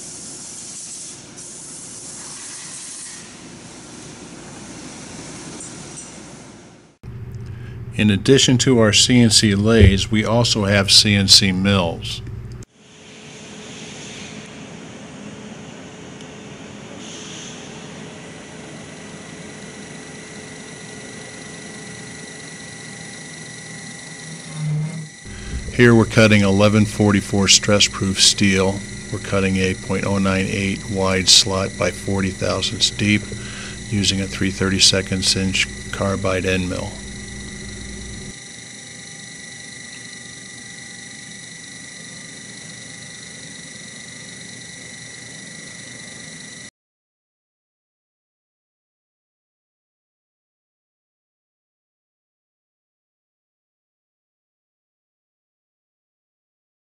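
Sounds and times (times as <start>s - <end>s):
machinery hum and hiss: 0.0s - 46.7s
high machine whine: 7.0s - 12.7s, 20.4s - 46.7s.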